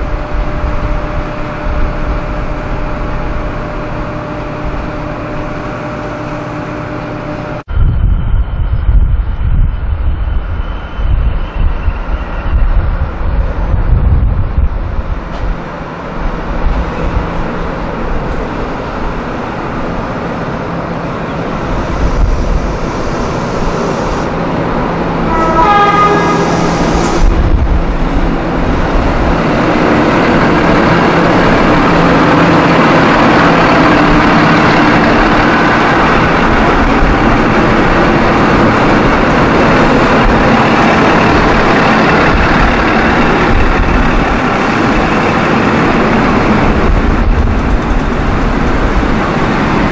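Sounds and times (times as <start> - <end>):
train carriages rumbling past: 0.0 - 49.9
train horn blast: 25.2 - 27.4.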